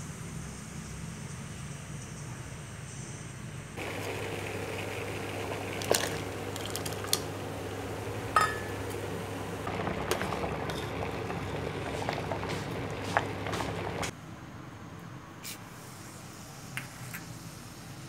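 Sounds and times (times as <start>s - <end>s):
water bubbling in saucepan: 3.8s - 14.1s
metal ladle clinking on pot: 8.4s - 8.8s.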